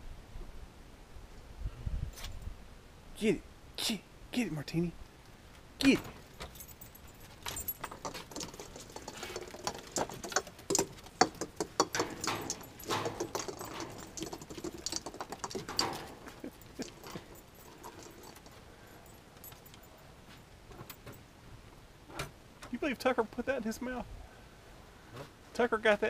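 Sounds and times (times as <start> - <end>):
dog claws clicking on wooden deck: 6.0 - 18.6
plastic ornament balls clicking: 7.9 - 18.4.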